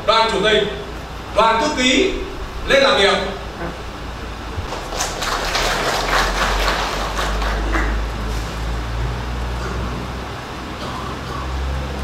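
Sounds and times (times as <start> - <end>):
audience applauding: 4.6 - 8.3.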